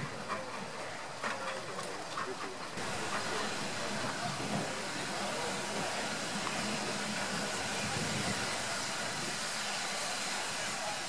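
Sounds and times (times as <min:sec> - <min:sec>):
steam hissing: 0:02.8 - 0:11.0.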